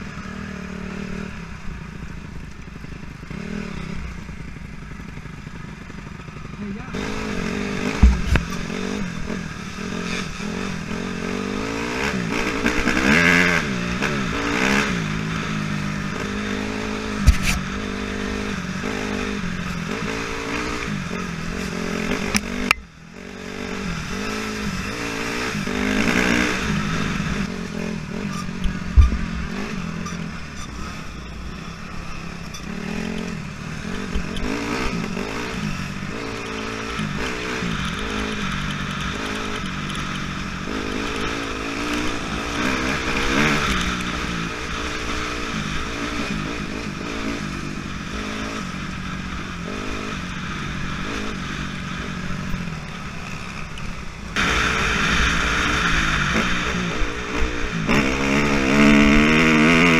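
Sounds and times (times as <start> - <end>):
dirt bike engine revving: 2.8 - 59.9
knocks of bike hitting bumps: 7.8 - 8.6, 17.2 - 17.6.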